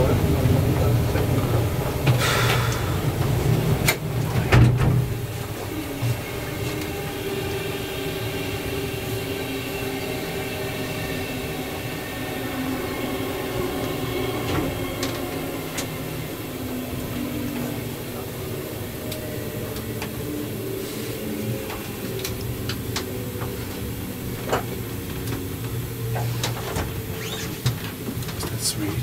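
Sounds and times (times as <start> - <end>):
train coach rumble and hum: 0.0 - 29.0.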